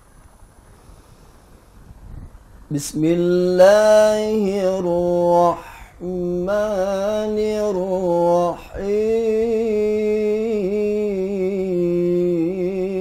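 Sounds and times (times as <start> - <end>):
man chanting recitation: 2.7 - 13.0.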